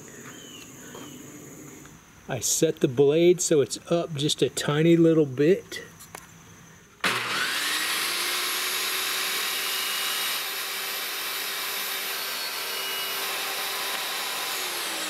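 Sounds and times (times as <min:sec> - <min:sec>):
table saw cutting wood: 0:07.0 - 0:15.0.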